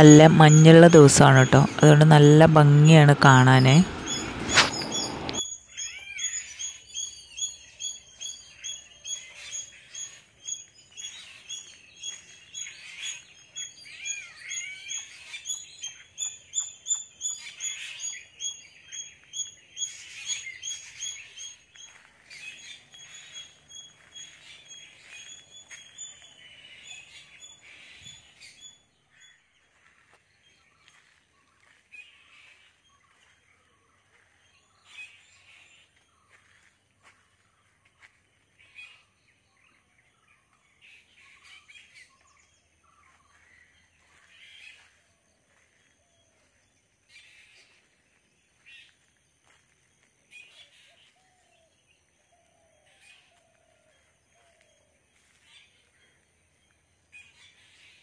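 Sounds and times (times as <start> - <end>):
birds chirping: 0.0 - 49.6.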